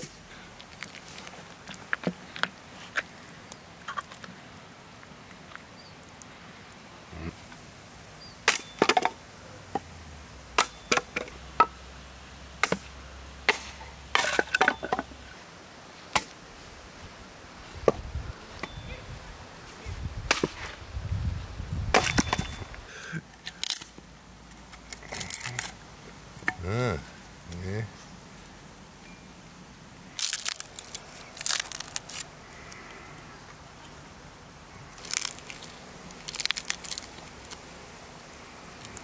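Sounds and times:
axe chopping wood: 10.6 - 11.7, 12.6 - 12.9, 13.5 - 14.8, 20.3 - 20.7.

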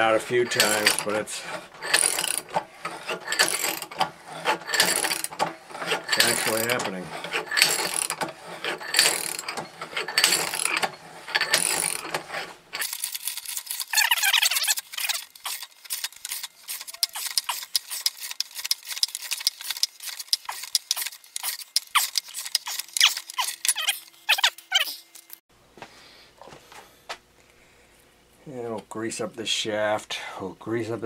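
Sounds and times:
ratchet clicking: 0.5 - 1.2, 1.8 - 25.4.

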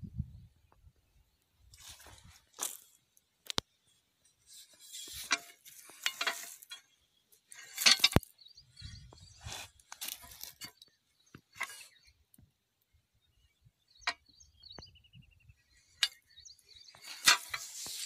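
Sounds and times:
dry leaves rustling: 1.8 - 3.0.

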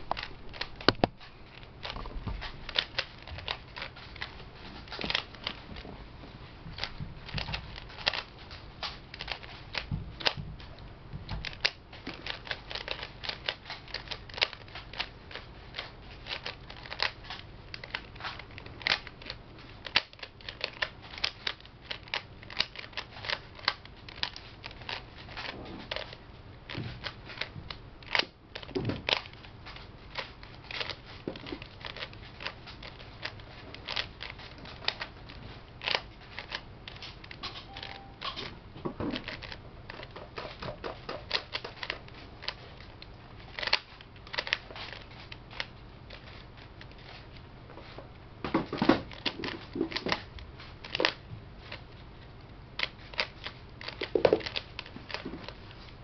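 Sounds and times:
puzzle cube plastic clicking: 6.8 - 8.3, 8.9 - 38.5, 39.1 - 47.3, 52.8 - 55.7.

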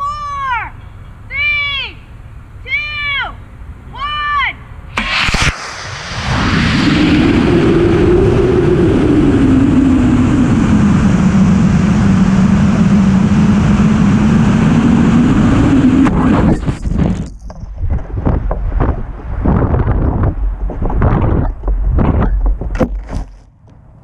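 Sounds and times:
sharp bangs: 4.9 - 8.2
rush of air: 4.9 - 17.3
humming tone: 5.0 - 17.1
wind gusts on microphone: 5.0 - 23.3.

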